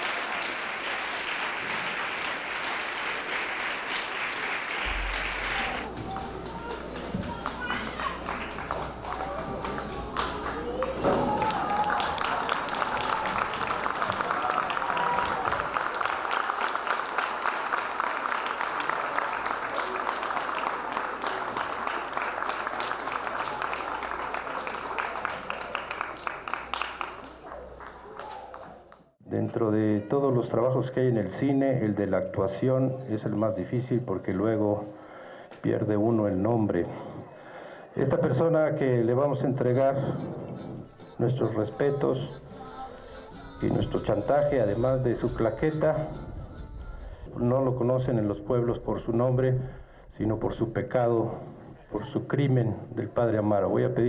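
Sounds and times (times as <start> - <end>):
audience applauding: 0.0 - 29.2
low rumble: 4.8 - 6.9.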